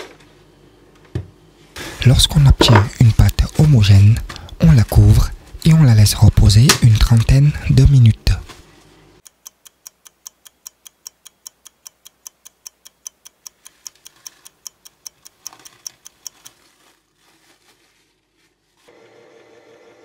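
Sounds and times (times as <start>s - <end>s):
clock ticking: 9.2s - 16.8s.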